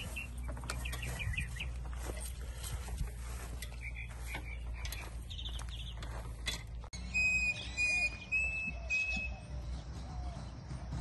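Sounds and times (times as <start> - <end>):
low outdoor rumble: 0.0 - 11.0
high whistled notes: 7.0 - 10.5.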